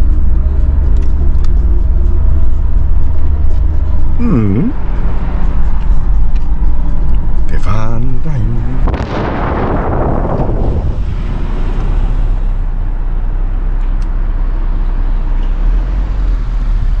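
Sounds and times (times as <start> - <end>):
car engine and road noise: 0.0 - 17.0
rush of noise: 8.2 - 12.9.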